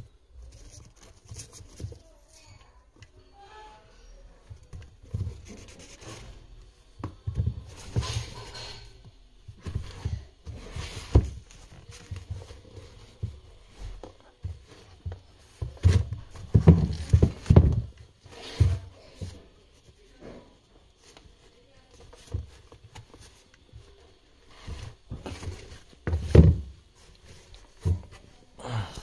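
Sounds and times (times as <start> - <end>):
rustling rubs: 0.4 - 2.7, 4.6 - 28.6
sneaker handling thumps: 9.5 - 19.4, 24.6 - 26.8.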